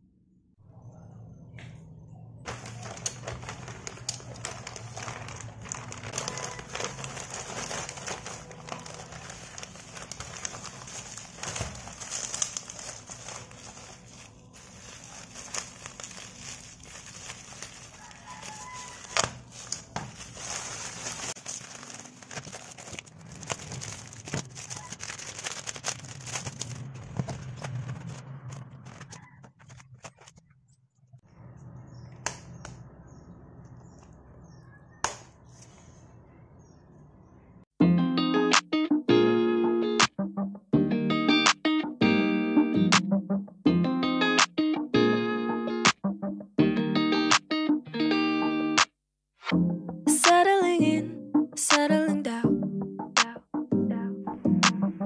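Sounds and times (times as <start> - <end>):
plastic mailer crinkling: 2.5 - 30.5.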